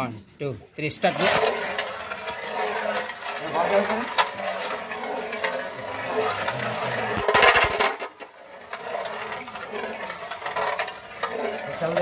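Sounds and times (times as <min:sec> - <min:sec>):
spinning tops rattling on metal tray: 0:01.0 - 0:12.0
rapid clattering: 0:07.2 - 0:08.0.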